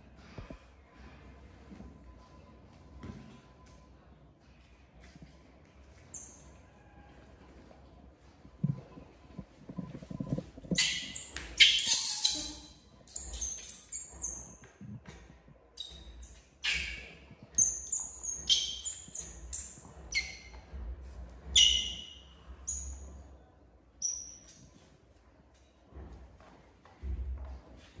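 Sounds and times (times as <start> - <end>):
baby monkey squealing: 10.8 - 14.5, 15.8 - 20.5, 21.5 - 22.9, 24.0 - 24.4.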